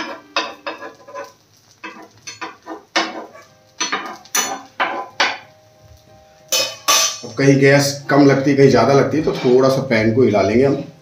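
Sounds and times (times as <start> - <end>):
utensil scraping a pan: 0.0 - 5.4.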